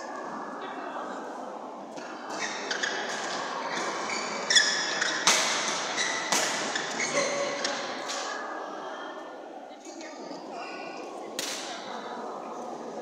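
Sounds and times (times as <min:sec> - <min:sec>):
shoe squeaks on court: 0:02.3 - 0:08.3
racquets hitting shuttlecock: 0:04.8 - 0:07.0.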